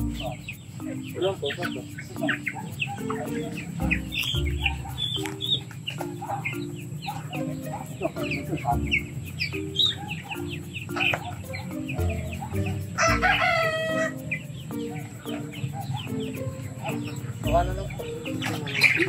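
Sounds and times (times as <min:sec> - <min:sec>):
background music: 0:00.0 - 0:19.0
chickens clucking: 0:00.0 - 0:19.0
rooster crowing: 0:09.9 - 0:17.1.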